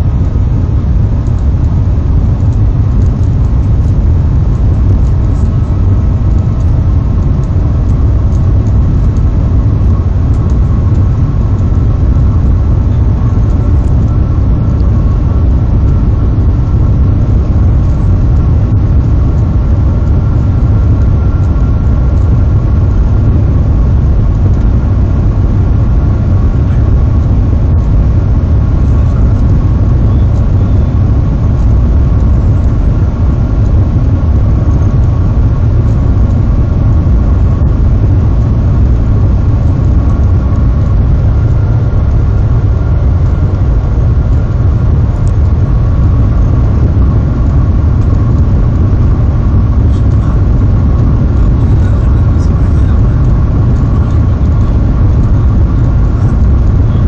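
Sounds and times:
train cabin low rumble: 0.0 - 57.0.

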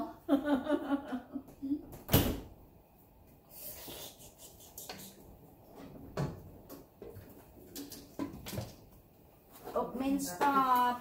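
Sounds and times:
light rubbing and clatter: 4.3 - 10.9.

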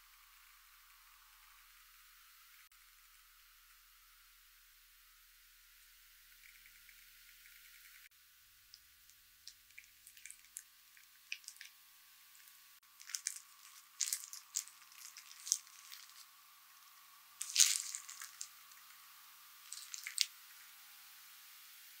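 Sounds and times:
wet squishes of rice: 8.7 - 11.8, 12.4 - 16.3, 17.4 - 19.0, 19.7 - 20.4
plastic glove crinkling: 11.3 - 11.7, 12.4 - 16.3, 17.4 - 19.0, 19.6 - 20.4.

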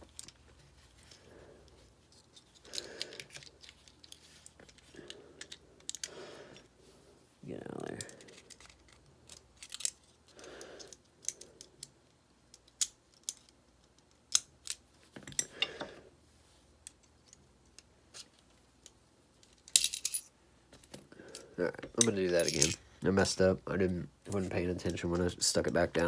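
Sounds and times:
steel parts clicking and scraping: 0.0 - 6.7, 8.0 - 11.9, 21.3 - 22.8.

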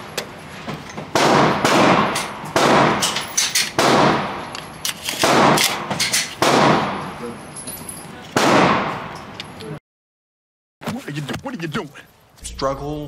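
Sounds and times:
gunshots echoing indoors: 1.1 - 4.5, 5.2 - 7.2, 8.4 - 9.3.

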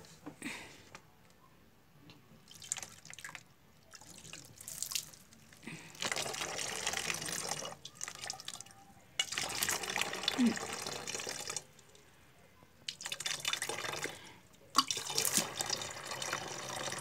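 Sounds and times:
water drips and splashes: 2.5 - 11.8, 12.8 - 14.1, 14.7 - 17.0
water trickling into funnel: 2.5 - 11.9, 12.9 - 17.0.

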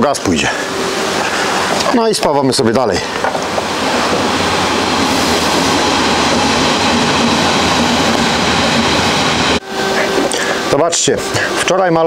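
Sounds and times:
welding arc noise: 3.2 - 10.6.

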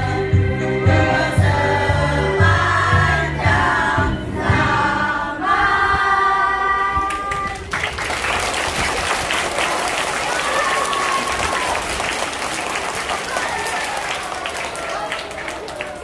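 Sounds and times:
group of voices singing: 0.0 - 7.4.

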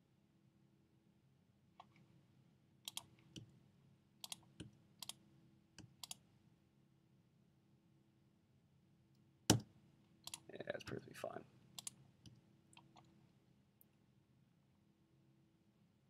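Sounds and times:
mouse and keyboard clicks: 2.9 - 3.5, 4.2 - 5.2, 5.8 - 6.2, 11.8 - 12.0.

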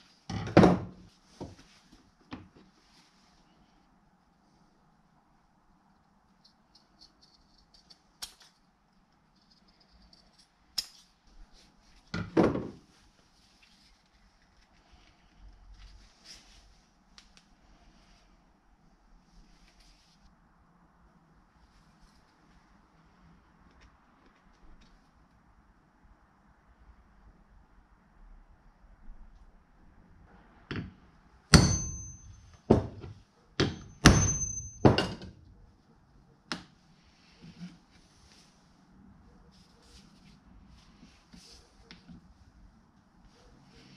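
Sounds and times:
short metallic ring: 31.5 - 32.8, 33.7 - 35.3
hammer striking metal punch: 31.5 - 35.3.

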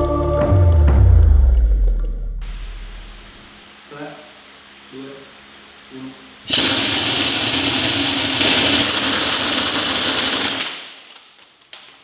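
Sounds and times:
compressed air hissing: 6.5 - 10.8.

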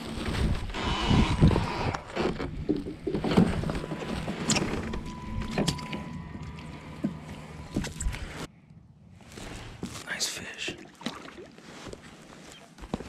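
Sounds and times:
knocks and rustles on kayak hull: 1.4 - 5.9
water splashing: 10.7 - 12.6.

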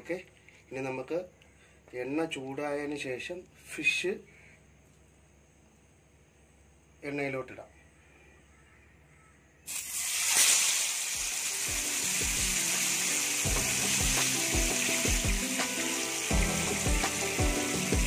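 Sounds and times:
fish sizzling in oil: 9.7 - 18.0
background music with beat: 11.7 - 18.0.

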